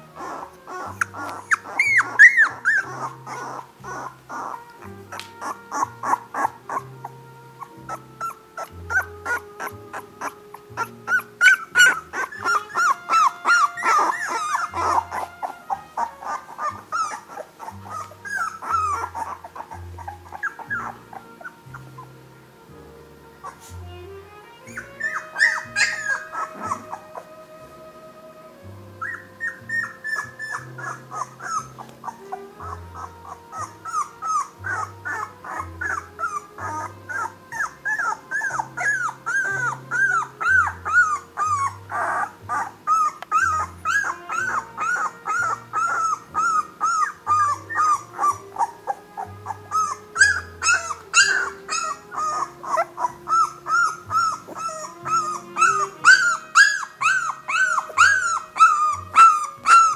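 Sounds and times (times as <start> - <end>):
background music: 0.0 - 59.9
puppies whimpering and squealing: 0.0 - 59.9.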